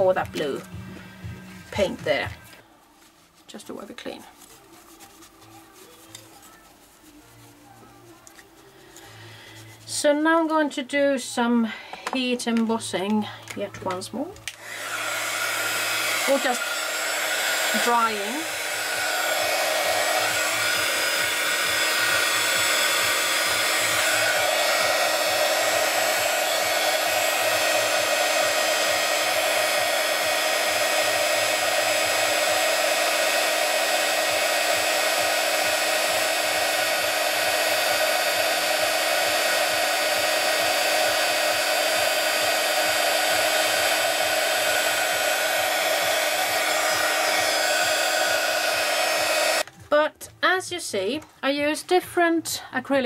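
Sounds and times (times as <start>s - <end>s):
heat gun blowing: 14.5s - 49.7s.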